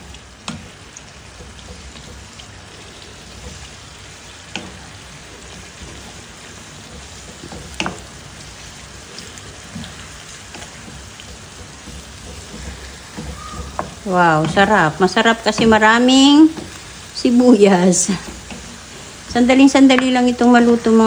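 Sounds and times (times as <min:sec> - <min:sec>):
food sizzling in a frying pan: 0:00.0 - 0:21.0
spatula knocking against pan: 0:09.7 - 0:16.8.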